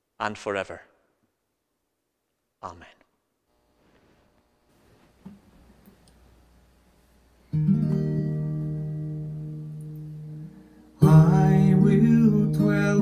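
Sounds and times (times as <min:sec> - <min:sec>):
acoustic guitar chord ringing: 0:07.5 - 0:13.0.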